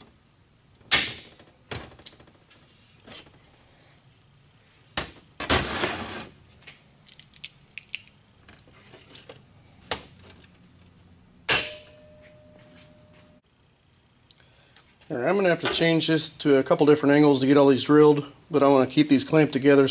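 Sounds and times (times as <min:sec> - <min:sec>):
steel clank with ringing tone: 0:11.5 - 0:13.4.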